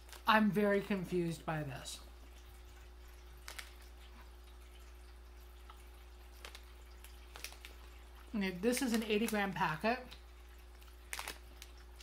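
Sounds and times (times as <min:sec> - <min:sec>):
wet chewing clicks: 0:02.7 - 0:09.4, 0:10.0 - 0:12.0.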